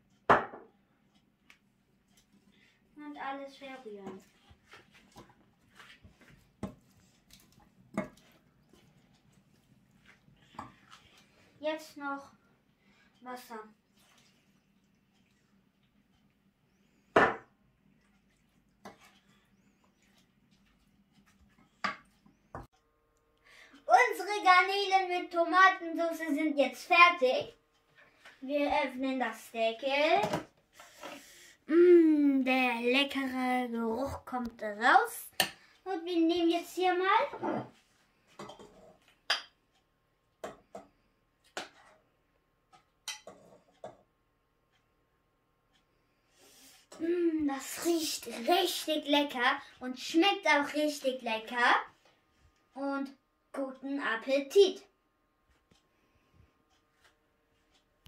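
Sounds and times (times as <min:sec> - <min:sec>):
wooden spoon stirring in pan: 0:01.2 - 0:22.7, 0:40.4 - 0:43.8.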